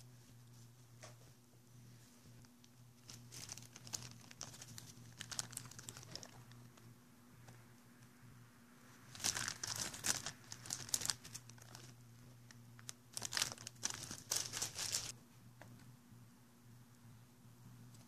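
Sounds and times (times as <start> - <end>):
plastic bag crinkling: 3.0 - 6.7, 9.1 - 15.1.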